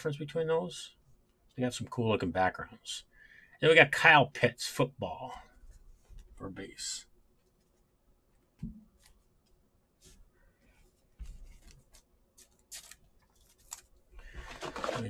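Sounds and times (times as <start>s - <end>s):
trading cards handled on a table: 7.4s - 15.0s.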